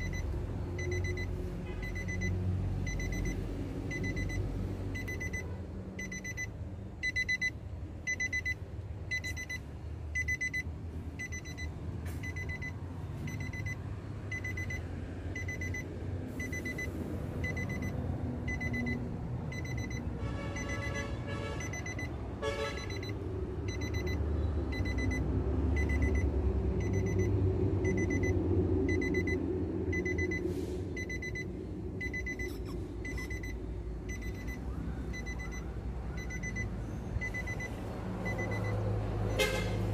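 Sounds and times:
car warning chime beeping: 0.0s - 39.5s
low steady rumble: 21.6s - 38.7s.

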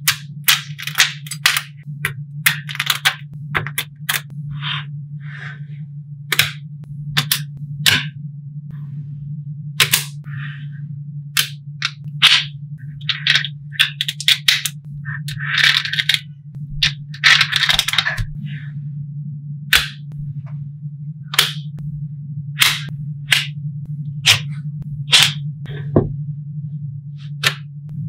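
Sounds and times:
low hum: 0.0s - 28.0s
magnetic balls clicking: 11.4s - 18.4s.

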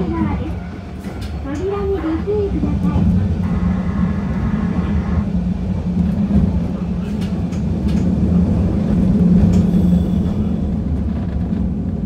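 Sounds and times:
electric train running hum: 0.0s - 12.0s
light clicks from rails: 6.0s - 8.2s, 8.8s - 12.0s.

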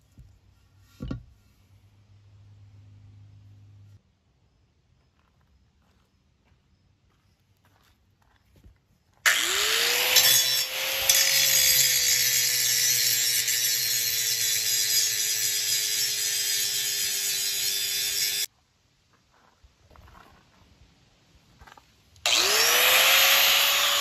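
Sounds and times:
angle grinder grinding steel: 9.3s - 18.5s, 22.3s - 24.0s.

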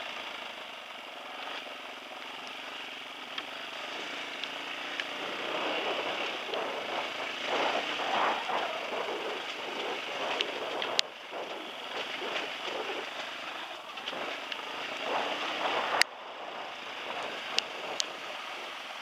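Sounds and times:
dirt bike engine running: 0.0s - 19.0s
faint clicks: 4.4s - 19.0s
wind on microphone: 5.0s - 19.0s.

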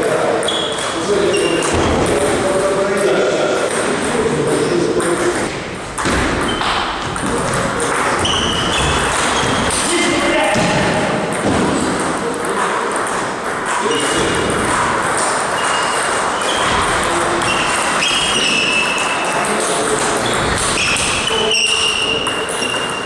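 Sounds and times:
high squeaks: 0.4s - 1.9s, 6.4s - 7.0s, 7.6s - 10.1s, 13.8s - 14.5s, 15.2s - 19.6s, 20.2s - 23.0s.

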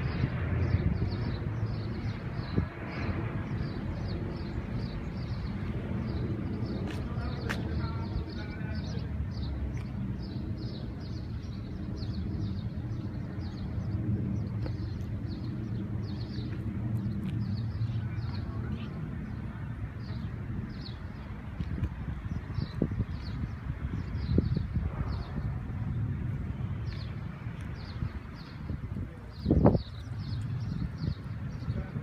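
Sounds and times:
distant traffic rumble: 0.0s - 32.0s.

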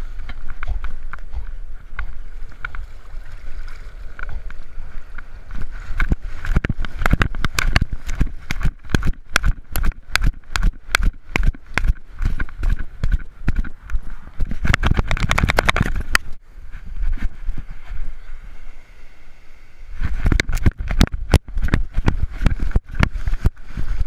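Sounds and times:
water sloshing and rumbling: 0.0s - 19.3s, 19.9s - 24.0s.

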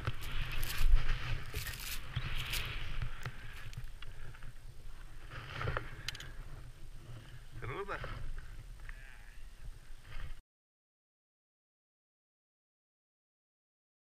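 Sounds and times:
skis hissing through snow: 0.1s - 3.6s.

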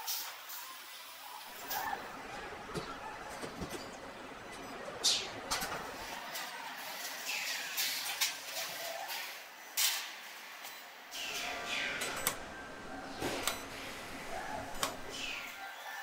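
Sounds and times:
metallic clicks and clanks: 11.2s - 15.5s.

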